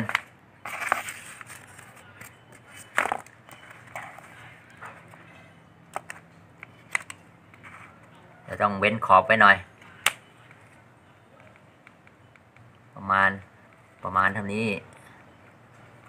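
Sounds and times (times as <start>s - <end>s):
cardboard rustling: 0.0s - 4.4s.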